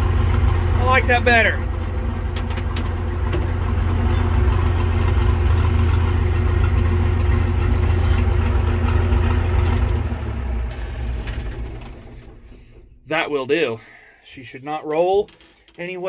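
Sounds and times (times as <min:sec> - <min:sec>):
loud diesel tractor engine: 0:00.0 - 0:15.2.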